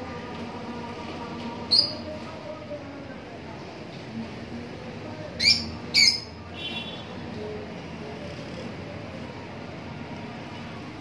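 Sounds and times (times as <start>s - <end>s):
faint bird chatter: 5.4s - 6.3s.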